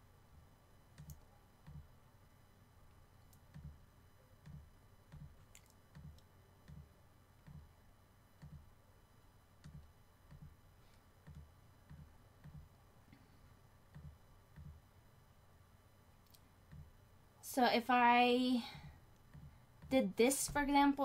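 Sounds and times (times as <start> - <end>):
computer mouse clicks: 0.9 - 1.9, 4.4 - 7.7.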